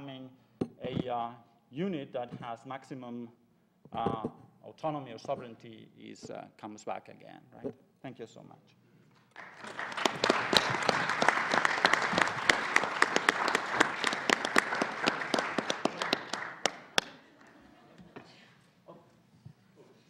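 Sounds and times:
audience applauding: 0:09.3 - 0:17.7.

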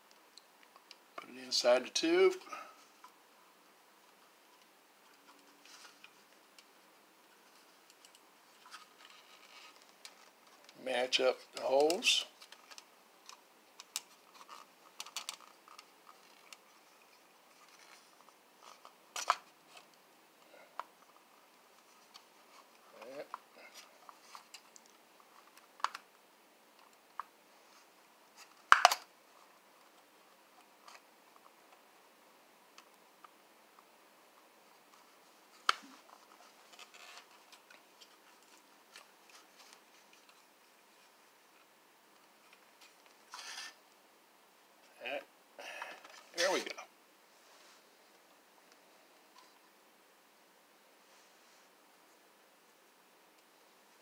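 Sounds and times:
plastic rubbing: 0:07.3 - 0:10.8, 0:11.4 - 0:20.0, 0:34.7 - 0:43.8
plastic parts clicking and scraping: 0:11.6 - 0:20.0, 0:34.9 - 0:40.4, 0:41.0 - 0:43.8
plastic parts clicking together: 0:12.4 - 0:16.6, 0:28.7 - 0:29.1.

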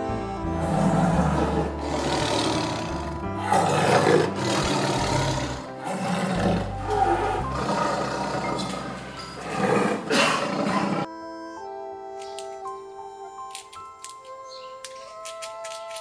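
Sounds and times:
background music: 0:00.0 - 0:16.0
jaguar growling: 0:00.6 - 0:11.1.

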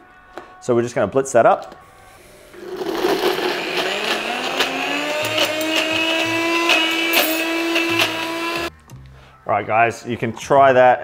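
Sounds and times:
blender motor running: 0:02.3 - 0:08.7.

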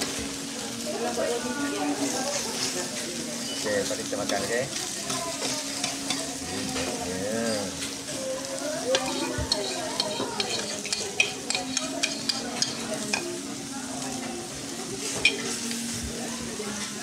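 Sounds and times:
batter sizzling on griddle: 0:00.0 - 0:17.0
metal spoons scraping: 0:08.9 - 0:13.3
spoons clinking on plate: 0:08.9 - 0:13.3, 0:15.2 - 0:15.6.

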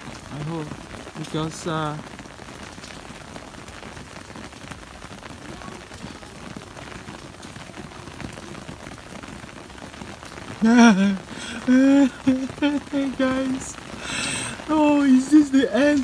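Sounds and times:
rain and wet snow on leaves: 0:00.0 - 0:16.0
woman's voice: 0:10.6 - 0:13.8, 0:14.7 - 0:16.0.

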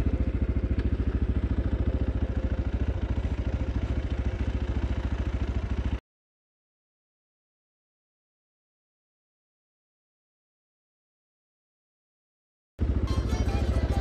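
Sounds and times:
motorcycle engine chugging: 0:00.0 - 0:06.0, 0:12.8 - 0:14.0.

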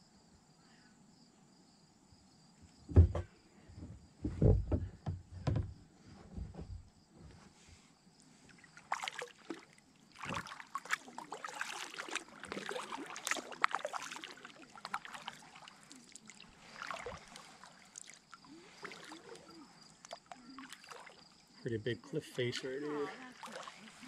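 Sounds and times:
kayak paddle strokes in water: 0:08.6 - 0:21.3, 0:22.6 - 0:24.0
water dripping off paddle: 0:08.8 - 0:21.4.

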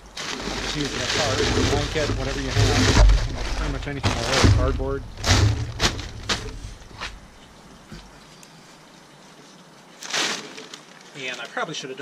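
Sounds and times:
plastic tarp rustling and crinkling: 0:00.0 - 0:07.4, 0:09.9 - 0:12.0.

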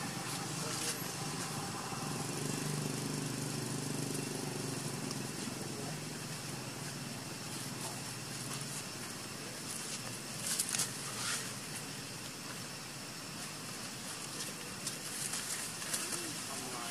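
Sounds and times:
vehicle engine running: 0:00.0 - 0:10.4
outdoor hiss: 0:00.0 - 0:16.9.

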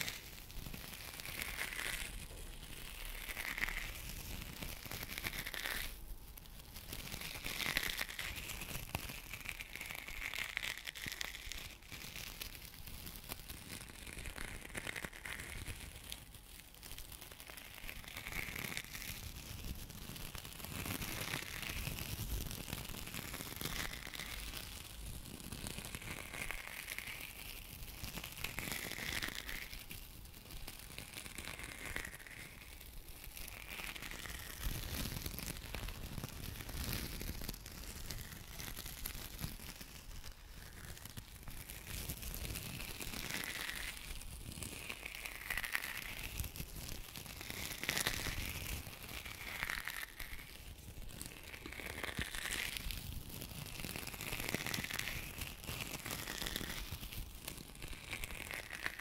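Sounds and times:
small ticks: 0:00.0 - 0:59.0.

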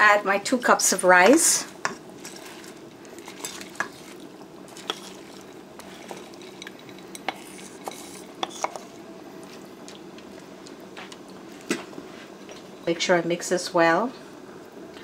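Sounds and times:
faint background hum: 0:00.0 - 0:15.0
wooden spoon scraping bowl: 0:01.8 - 0:09.0.

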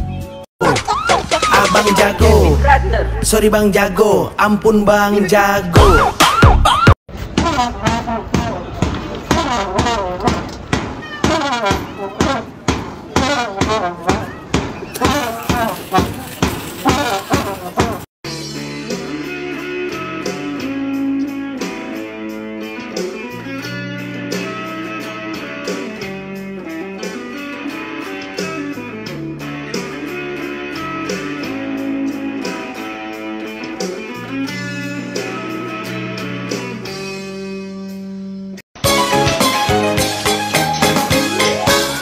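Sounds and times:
bass line: 0:00.0 - 0:10.4.

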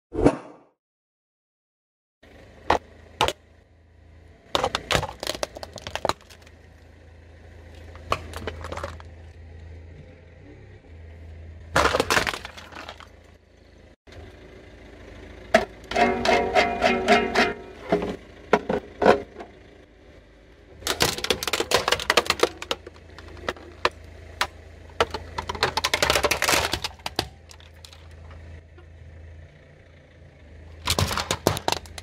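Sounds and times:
car engine running: 0:02.2 - 0:32.0
plastic toys cracking under tyre: 0:04.6 - 0:06.6, 0:07.8 - 0:09.2, 0:11.7 - 0:13.2, 0:20.8 - 0:28.3, 0:30.8 - 0:32.0
toy guitar strings strummed: 0:15.9 - 0:17.9.

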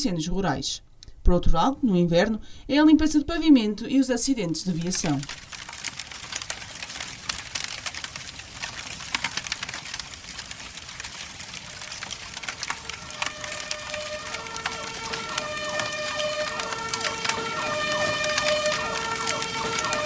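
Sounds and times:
dense crackling and popping: 0:03.1 - 0:20.0
steady tones switching pitch: 0:12.7 - 0:20.0.

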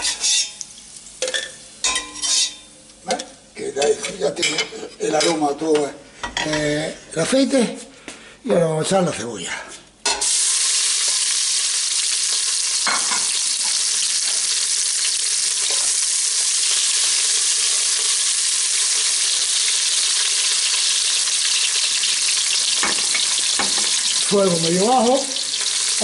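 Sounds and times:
onion sizzling in hot oil: 0:00.0 - 0:03.5, 0:10.0 - 0:26.0.

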